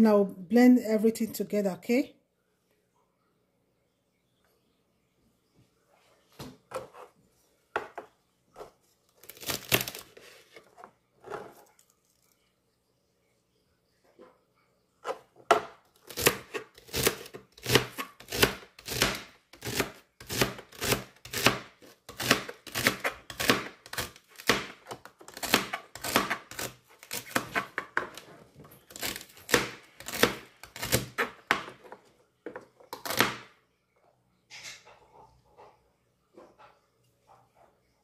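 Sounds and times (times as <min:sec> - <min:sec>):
knife chopping celery on cutting board: 0:15.1 - 0:28.2, 0:29.0 - 0:31.7, 0:32.9 - 0:33.4.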